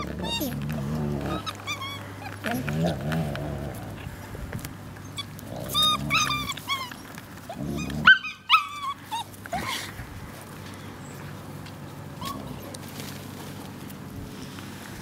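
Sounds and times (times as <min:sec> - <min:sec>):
puppies yelping: 0:00.0 - 0:04.3, 0:05.0 - 0:10.0, 0:12.1 - 0:12.6
dog growling low: 0:00.0 - 0:04.4, 0:05.2 - 0:08.2, 0:12.2 - 0:12.8.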